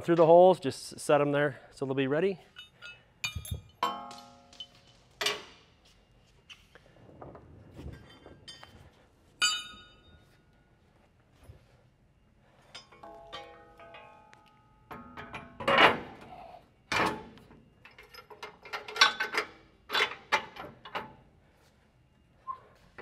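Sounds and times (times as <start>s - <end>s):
metal hardware clinking on frame: 2.4s - 5.6s.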